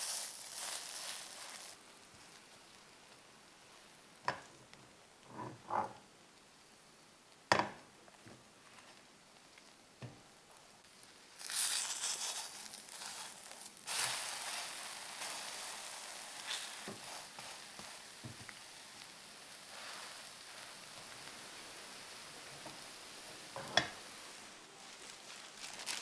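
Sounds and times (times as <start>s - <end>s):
pancake sizzling in hot oil: 0.0s - 4.6s, 10.8s - 26.0s.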